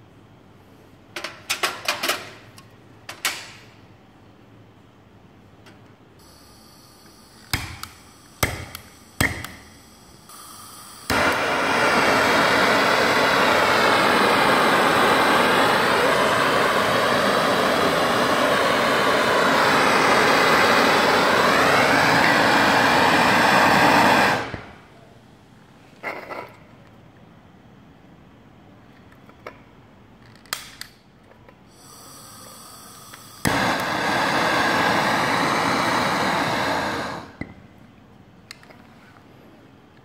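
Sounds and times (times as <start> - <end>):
faint gas hiss: 3.5 - 26.6, 31.5 - 40.0
blowtorch burning with rushing hiss: 6.2 - 24.9, 31.7 - 37.5.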